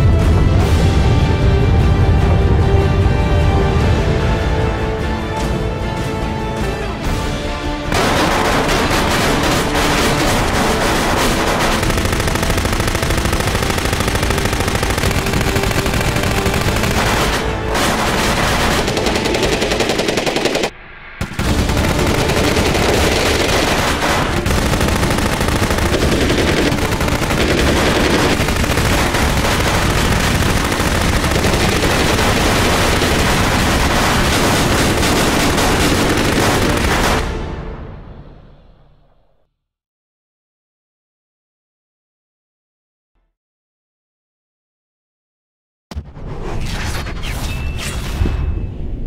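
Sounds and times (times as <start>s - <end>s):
automatic gunfire: 7.9s - 37.4s.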